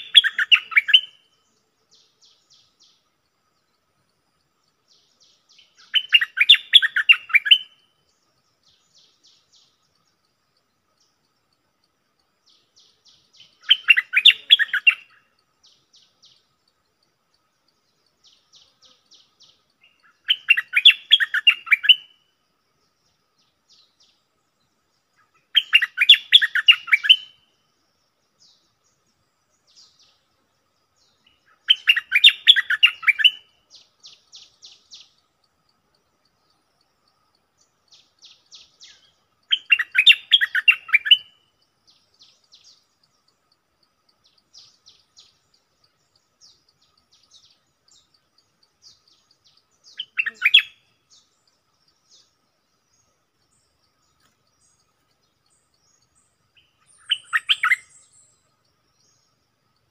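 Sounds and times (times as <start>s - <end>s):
bulbul singing: 0.0s - 59.9s
high bird chattering: 50.0s - 50.8s.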